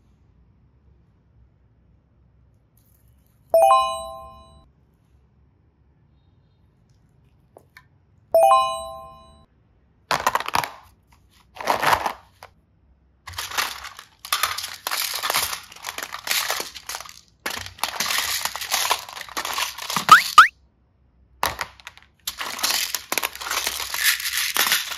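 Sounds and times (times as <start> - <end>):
bell-like ding: 3.6 - 4.6, 8.4 - 9.4
plastic toys and beads clattering: 10.1 - 12.5, 13.3 - 20.5, 21.4 - 24.9.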